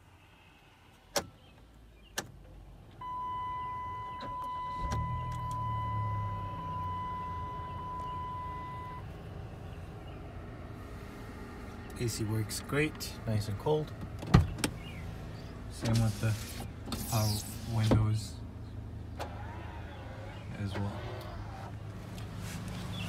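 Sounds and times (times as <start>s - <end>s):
car engine starting and idling: 1.0s - 23.0s.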